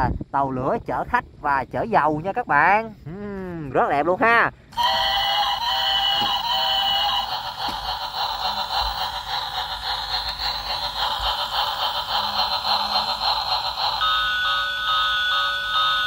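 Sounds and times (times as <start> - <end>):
buzzing electronic toy sound: 4.7 - 16.0.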